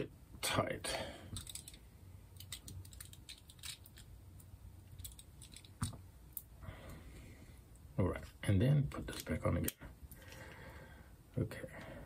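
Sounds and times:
small parts clicking and ticking: 1.3 - 6.5.

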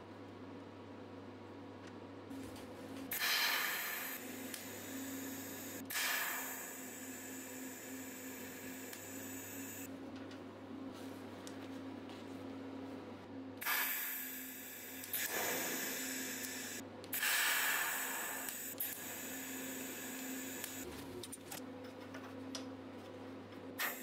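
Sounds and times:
steady low hum: 0.0 - 24.0
welding arc hissing: 3.1 - 9.9, 13.6 - 20.9, 23.8 - 24.0.

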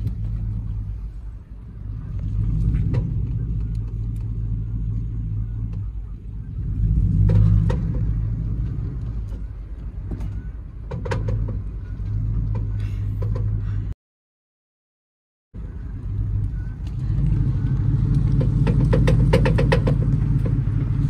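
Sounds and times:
truck engine rumble: 0.0 - 14.0, 15.5 - 21.0
truck body knocks and rattles: 7.0 - 13.6, 18.2 - 21.0.

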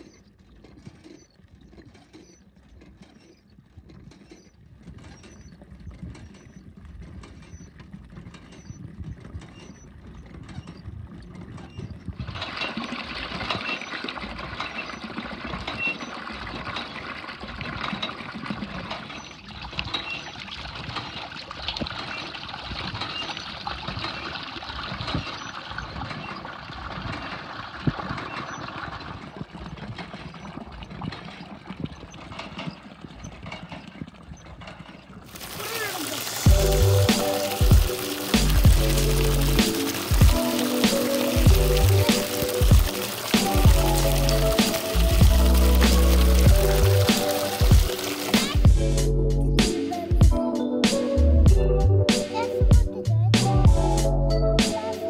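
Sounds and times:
water gushing and splashing: 11.4 - 50.4.

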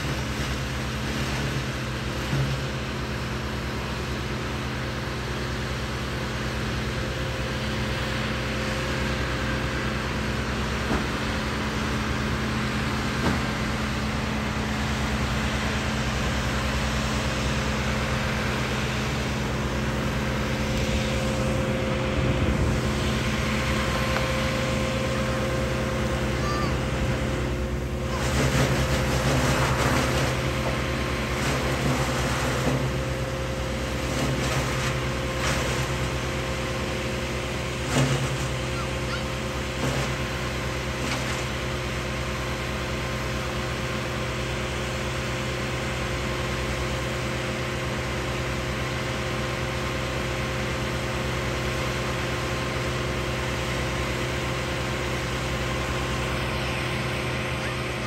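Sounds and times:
diesel machinery engine hum: 0.0 - 58.0.

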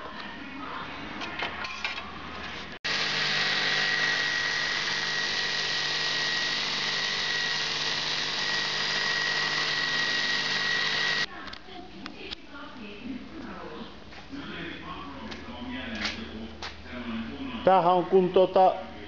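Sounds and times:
belt sander running: 2.8 - 11.3.

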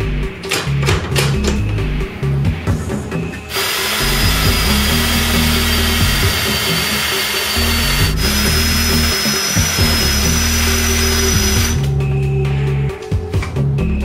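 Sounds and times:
background music: 0.0 - 14.0
power drill whining: 3.5 - 11.9.

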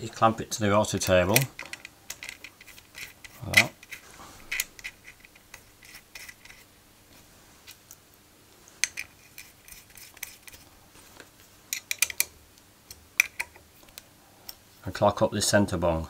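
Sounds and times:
metal nuts and washers clinking: 0.9 - 6.7, 8.8 - 10.6, 11.7 - 12.3, 13.2 - 13.6.

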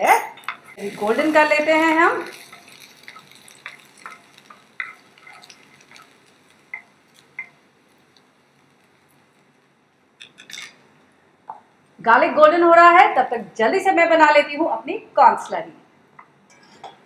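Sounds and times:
wooden spatula scraping a pan: 0.5 - 6.8.

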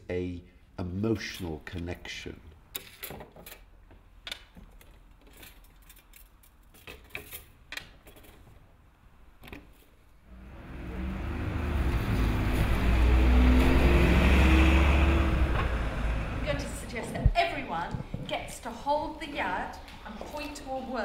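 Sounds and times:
road traffic: 10.2 - 18.1
bus engine droning: 10.3 - 17.2.

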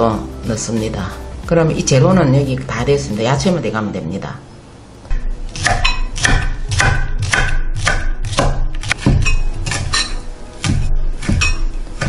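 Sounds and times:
knife chopping on wooden board: 5.5 - 12.0.

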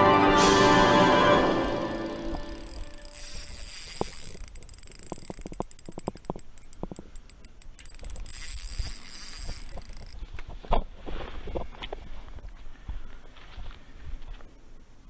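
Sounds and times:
fishing rod handling clicks: 1.7 - 10.4.

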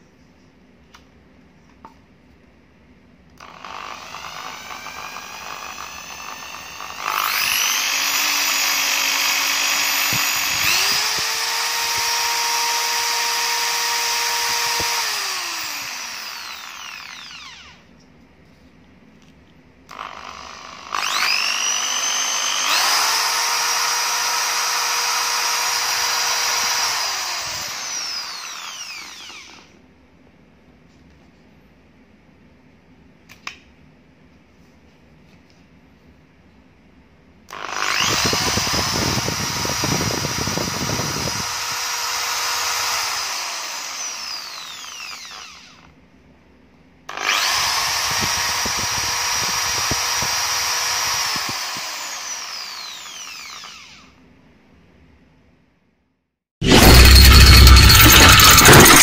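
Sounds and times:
hammer drill motor whining: 3.4 - 17.8, 19.9 - 29.7, 37.5 - 45.9, 47.1 - 54.2, 56.6 - 59.0.

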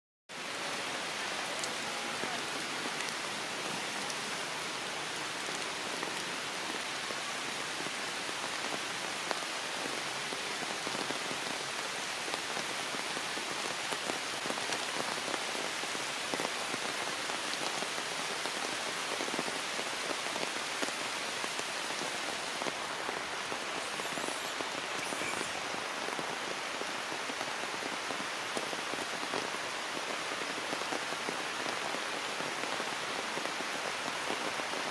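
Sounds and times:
heavy rain falling: 0.3 - 34.9.

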